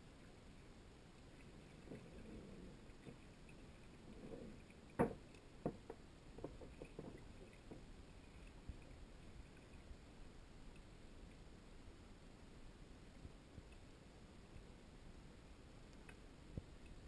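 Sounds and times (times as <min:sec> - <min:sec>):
muffled underwater knocks: 0:04.4 - 0:07.9.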